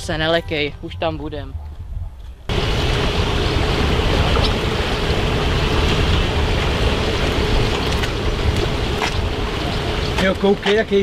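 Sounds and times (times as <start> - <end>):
river water rushing through weir: 2.5 - 11.0.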